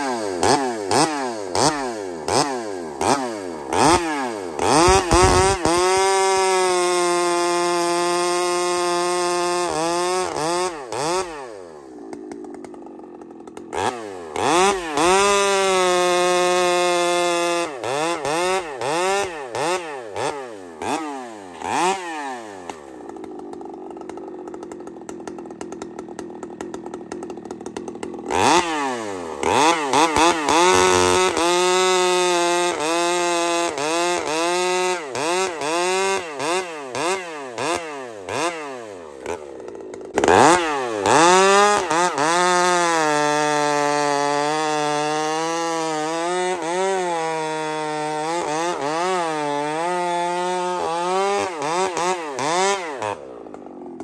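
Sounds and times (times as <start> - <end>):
chainsaw revving and cutting wood: 0.0 - 54.0.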